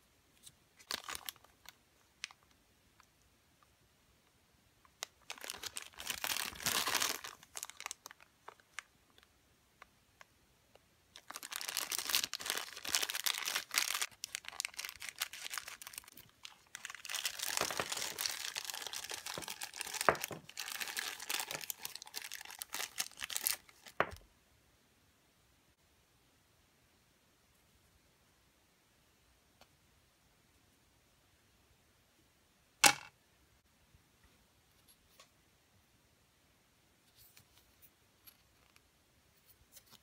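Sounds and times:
plastic bag crinkling: 0.8 - 2.4, 5.0 - 8.9, 11.1 - 24.2.

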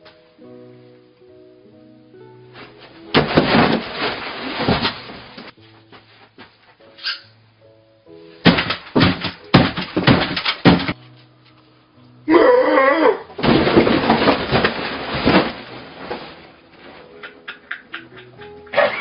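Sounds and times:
light background music: 0.0 - 13.5, 15.0 - 19.0
heavy thumps: 2.6 - 6.5, 8.4 - 11.0, 13.4 - 16.8
table setting crashing over: 3.1 - 5.5, 8.4 - 11.0, 13.4 - 16.6
loud wavering cry: 12.3 - 13.3.

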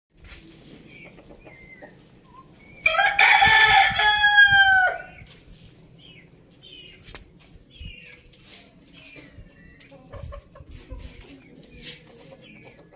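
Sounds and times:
hens clucking: 0.7 - 2.8, 9.0 - 12.9
rooster crowing: 2.8 - 5.2.

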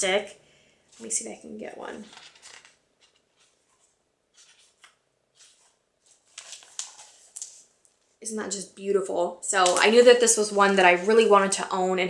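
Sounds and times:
book pages rustling: 2.0 - 8.2.

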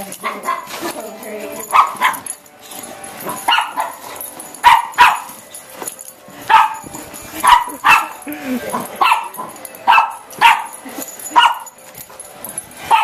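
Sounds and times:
dog barking: 0.2 - 0.8, 1.7 - 2.3, 3.3 - 5.4, 6.4 - 11.8.

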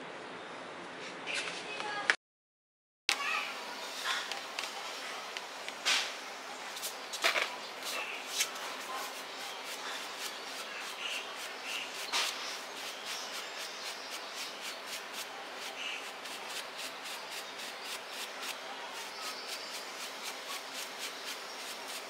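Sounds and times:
brush scrubbing fur: 7.7 - 22.0.

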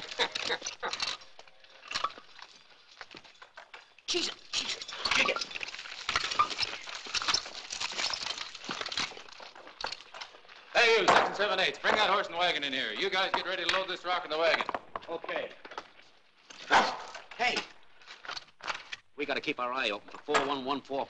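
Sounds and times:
chain irons clinking and rattling: 0.0 - 10.7.

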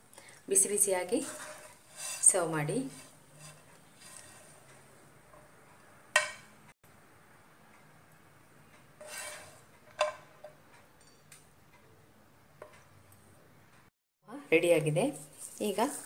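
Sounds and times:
spatula scraping plate: 1.0 - 5.6, 9.0 - 10.2.

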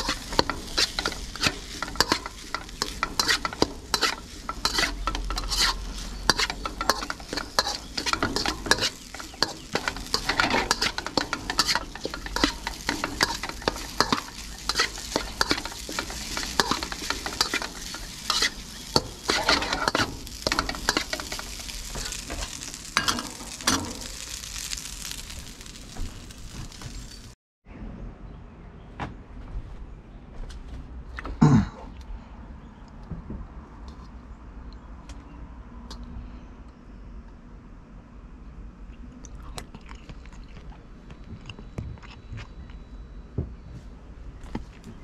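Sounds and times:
rice and oil sizzling: 0.0 - 27.4
spatula scraping wok: 0.0 - 27.4.

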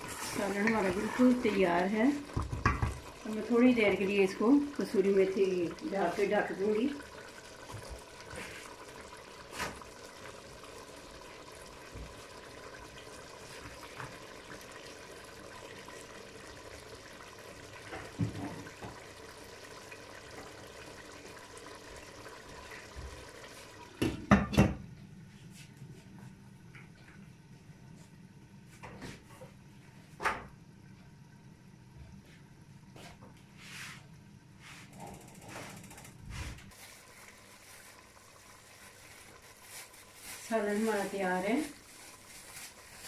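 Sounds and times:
curry bubbling in a pot: 0.0 - 24.4, 36.7 - 43.0.

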